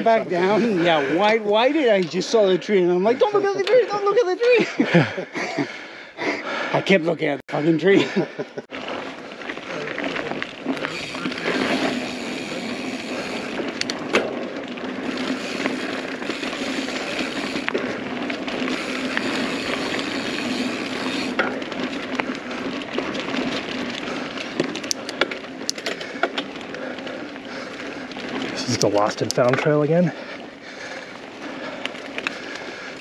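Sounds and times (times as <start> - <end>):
bike tyres on dirt trail: 0.0 - 33.0
bike rattling clicks and knocks: 8.7 - 33.0.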